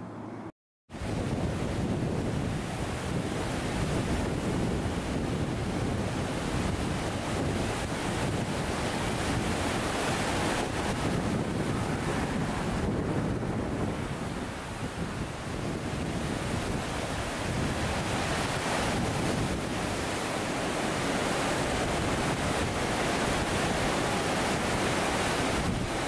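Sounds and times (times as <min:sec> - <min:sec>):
waterfall roaring: 0:08.5 - 0:14.7, 0:16.8 - 0:26.0.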